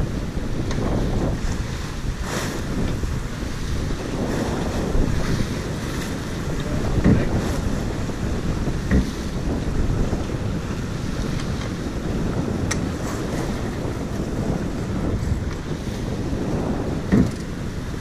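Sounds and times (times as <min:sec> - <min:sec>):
water rushing along hull: 0:00.0 - 0:18.0
wind buffeting microphone: 0:00.0 - 0:18.0
loud thump: 0:17.1 - 0:17.4.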